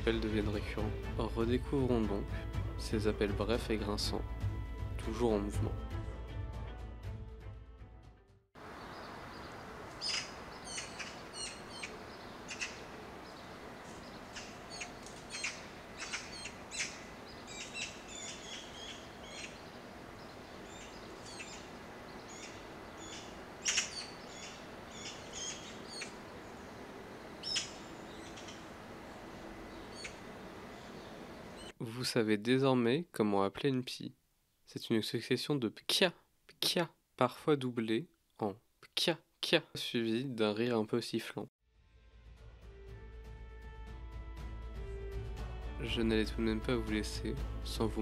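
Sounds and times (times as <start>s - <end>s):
magpies calling: 8.6s - 31.7s.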